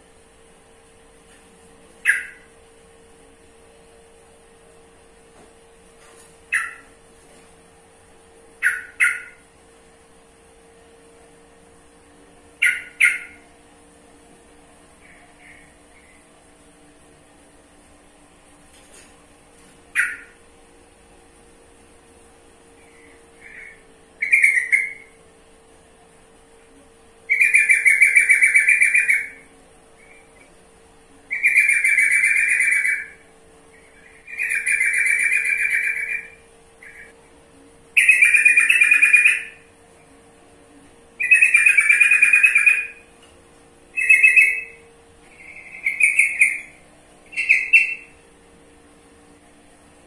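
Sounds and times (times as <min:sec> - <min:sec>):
bird chattering calls: 0:02.0 - 0:02.5, 0:06.5 - 0:06.9, 0:08.6 - 0:09.4, 0:12.6 - 0:13.5, 0:20.0 - 0:20.4, 0:23.0 - 0:25.1, 0:27.3 - 0:29.4, 0:31.3 - 0:33.2, 0:33.8 - 0:37.2, 0:38.0 - 0:39.6, 0:41.2 - 0:43.0, 0:44.0 - 0:44.8, 0:45.4 - 0:48.1.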